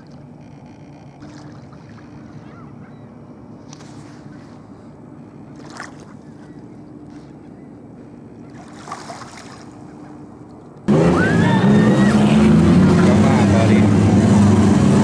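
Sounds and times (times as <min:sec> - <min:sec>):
water lapping: 0:00.0 - 0:11.3
light wind: 0:00.0 - 0:15.0.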